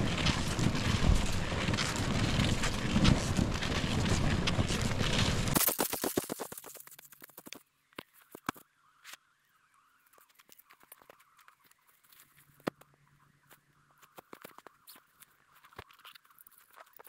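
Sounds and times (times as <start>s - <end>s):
footsteps crunching on snow: 0.0s - 7.6s.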